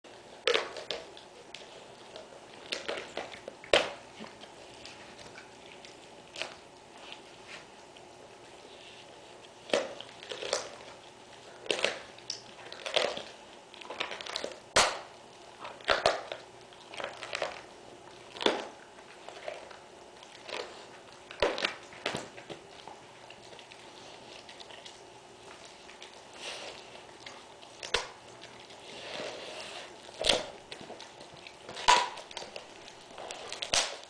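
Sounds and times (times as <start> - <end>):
dog chewing bone: 0.1 - 34.0
bone cracking: 30.1 - 34.0.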